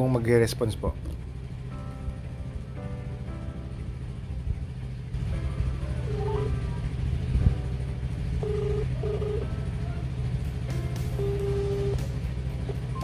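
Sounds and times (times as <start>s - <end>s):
background music with low bass: 0.0s - 13.0s
phone ringback beeps: 8.4s - 9.4s, 11.2s - 12.0s.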